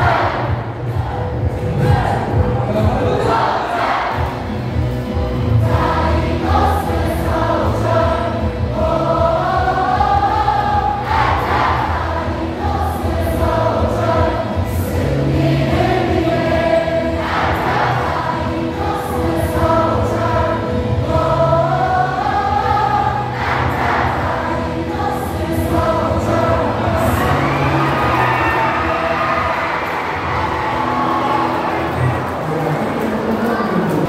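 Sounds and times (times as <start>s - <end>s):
amplified music: 0.0s - 33.8s
stadium crowd singing: 0.0s - 34.0s.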